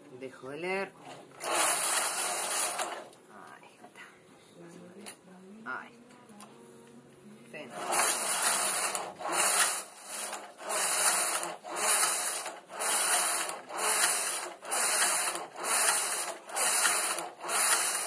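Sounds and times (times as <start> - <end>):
knitting machine carriage clattering: 1.1 - 3.1, 7.7 - 18.0.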